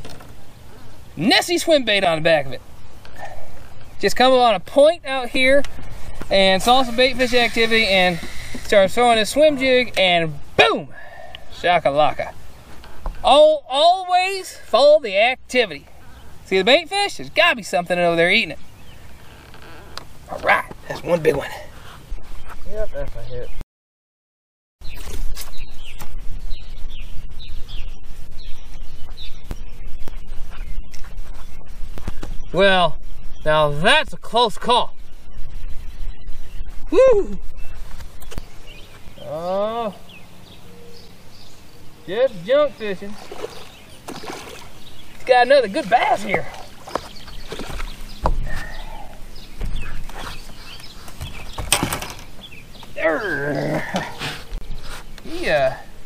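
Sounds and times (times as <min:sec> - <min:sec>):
songbird chirping: 0:00.0 - 0:23.6, 0:24.8 - 0:56.0
fish splashing at water surface: 0:43.1 - 0:44.8.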